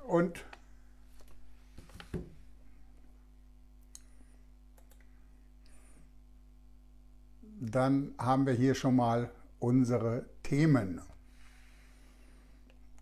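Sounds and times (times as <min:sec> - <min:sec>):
low steady hum: 0:00.0 - 0:13.0
computer mouse clicks: 0:04.7 - 0:05.1.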